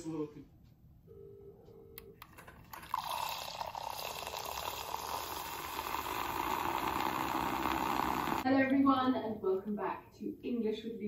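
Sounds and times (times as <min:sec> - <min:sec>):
electric milk frother whirring: 0:02.7 - 0:08.4.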